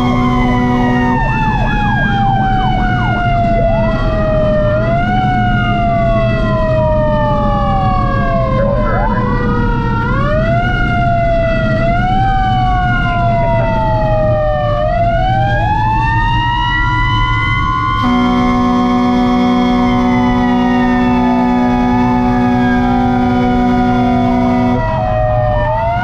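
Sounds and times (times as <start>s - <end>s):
multi-tone horn: 0.0s - 1.6s, 18.0s - 25.1s
fire truck sirens wailing: 0.0s - 26.0s.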